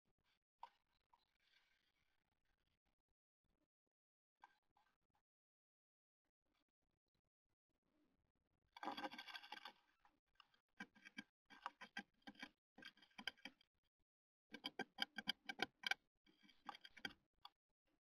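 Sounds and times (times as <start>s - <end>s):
bird scrabbling on wood: 14.5s - 17.2s.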